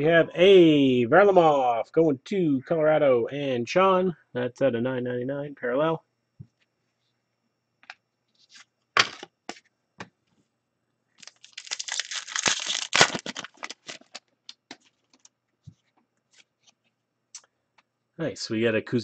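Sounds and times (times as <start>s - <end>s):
wrapper tearing and crinkling: 11.2s - 15.3s.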